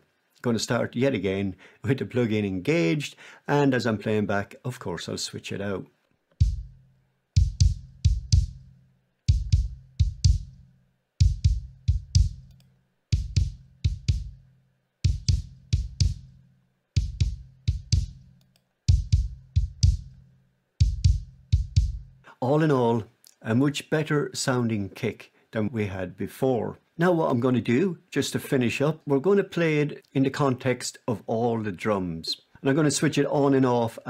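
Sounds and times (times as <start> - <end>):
kick drum thuds: 6.4 - 6.8, 7.4 - 8.7, 9.3 - 10.6, 11.2 - 12.4, 13.1 - 14.4, 15.0 - 16.4, 17.0 - 18.2, 18.9 - 20.2, 20.8 - 22.2.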